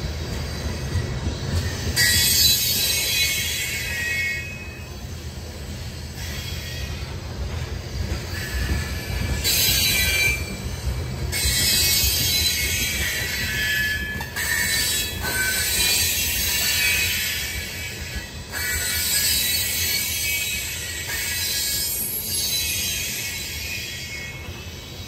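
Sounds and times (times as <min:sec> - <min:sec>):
freight train rumble: 0:00.0 - 0:25.0
train wheels squealing on rails: 0:00.0 - 0:25.0.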